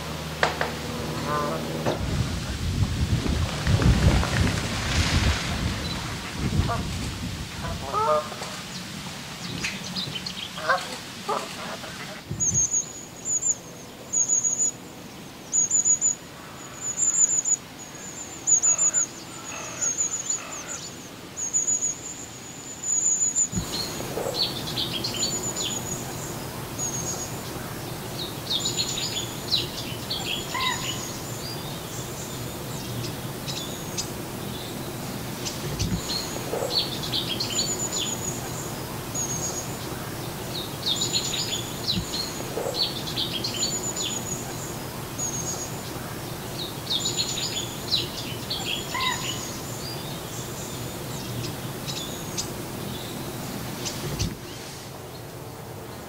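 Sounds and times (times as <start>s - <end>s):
steady background hiss: 0.0s - 56.0s
thin high bird calls: 15.5s - 54.7s.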